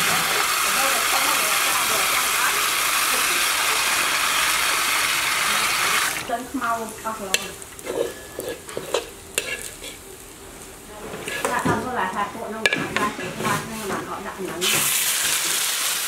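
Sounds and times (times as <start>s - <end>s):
wok frying: 0.0s - 16.0s
spatula clicking and scraping: 7.3s - 10.0s, 11.1s - 11.7s.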